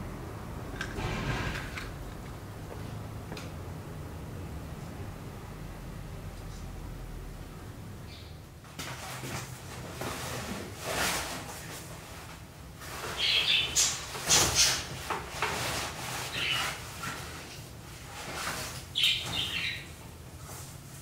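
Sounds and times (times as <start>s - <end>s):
bird chirps: 8.0s - 8.4s, 19.0s - 19.9s.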